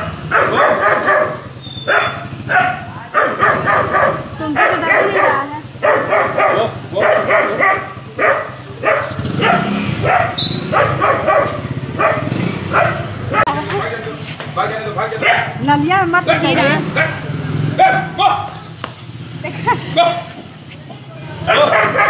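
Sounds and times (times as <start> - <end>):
dog barking: 0.0 - 13.6, 15.1 - 15.6, 16.2 - 18.6, 21.4 - 22.0.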